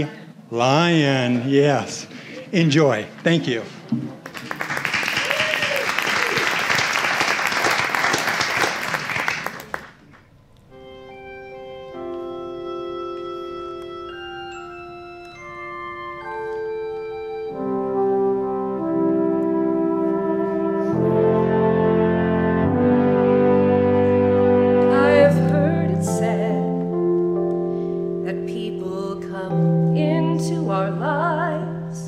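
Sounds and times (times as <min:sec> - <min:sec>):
applause: 0:04.2 - 0:10.2
slow instrumental music: 0:10.1 - 0:32.0.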